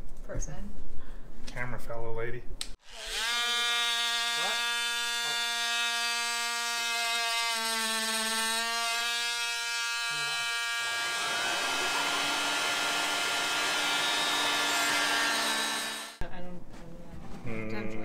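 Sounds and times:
oscillating tool buzzing through plastic: 2.8 - 16.2
vacuum rushing: 11.0 - 15.2.

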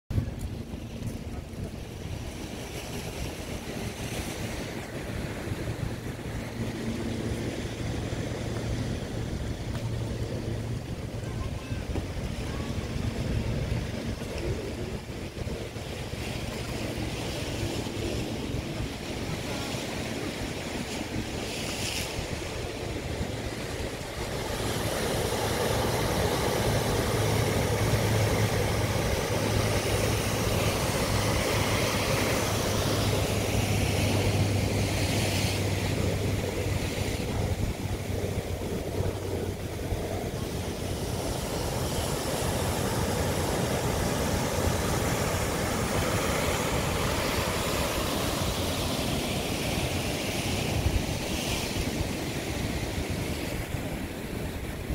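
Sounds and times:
ocean surf breaking: 0.1 - 54.9
wind on microphone: 0.1 - 54.9
steady low hum: 22.0 - 54.9.

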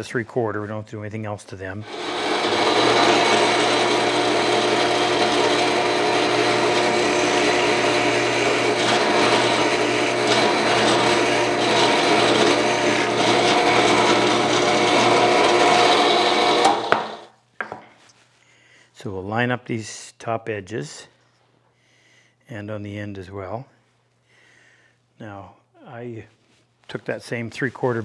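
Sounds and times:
drill bit cutting wood: 1.8 - 17.3
drill press motor hum: 1.8 - 17.3.

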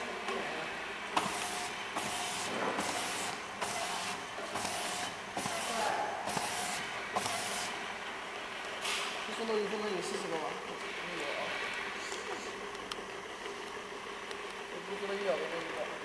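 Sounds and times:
conveyor humming: 0.0 - 16.0
labeling machine hiss: 1.1 - 7.9, 8.8 - 9.3.

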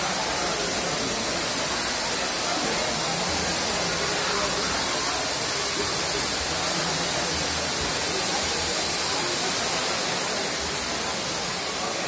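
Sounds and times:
firework fountains hissing: 0.0 - 12.0.

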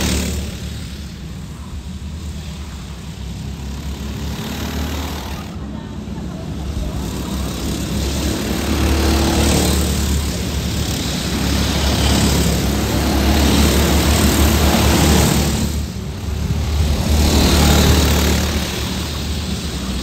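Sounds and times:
go-kart engines passing: 0.0 - 20.0.

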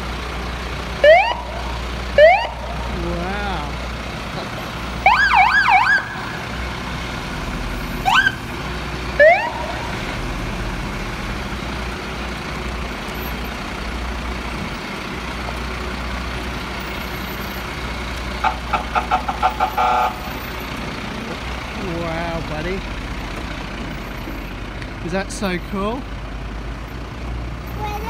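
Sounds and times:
fire truck siren: 0.0 - 3.9, 4.7 - 12.4, 16.4 - 21.2
diesel engines running: 0.0 - 28.0.

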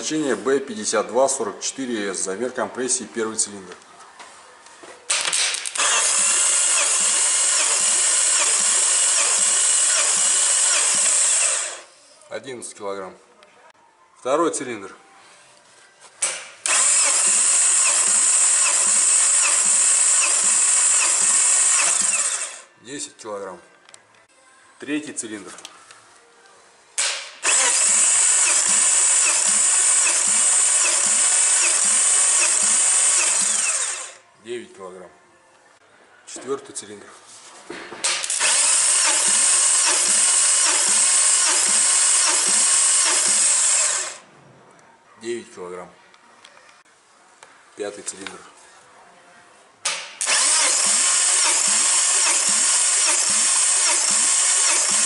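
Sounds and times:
power tool cranking engine: 5.6 - 11.9, 16.6 - 22.7, 27.4 - 34.2, 38.1 - 44.2, 50.2 - 55.0
electric drill high whine: 5.8 - 11.9, 16.6 - 22.7, 27.4 - 34.2, 38.2 - 44.2, 50.2 - 55.0.

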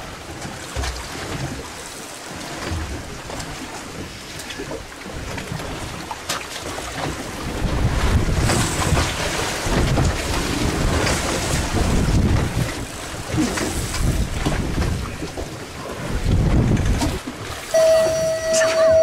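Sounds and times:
waves washing against hull: 0.0 - 19.0
wind buffeting microphone: 7.0 - 19.0.

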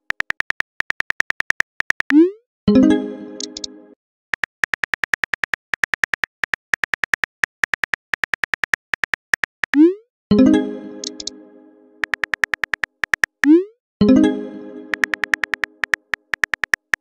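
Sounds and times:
phone keyboard clicks: 0.0 - 2.2, 3.4 - 3.7, 4.4 - 9.8, 11.0 - 11.3, 12.0 - 13.5, 14.9 - 17.0.

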